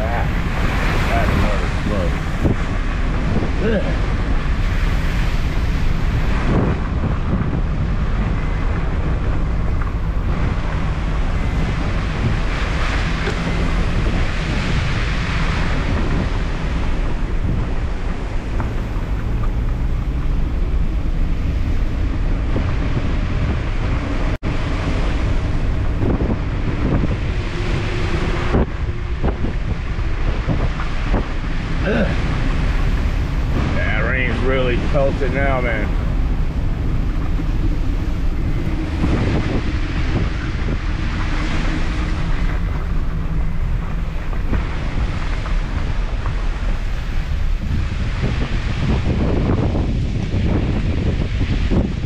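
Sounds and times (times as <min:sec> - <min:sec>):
car engine: 0:00.0 - 0:47.8
rain: 0:00.0 - 0:52.0
tyres on wet road: 0:00.0 - 0:52.0
wind noise on microphone: 0:00.0 - 0:52.0.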